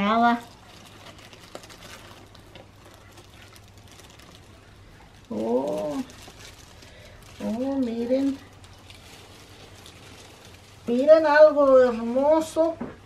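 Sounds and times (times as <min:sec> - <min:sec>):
plastic wrap crinkling: 0:00.0 - 0:13.0.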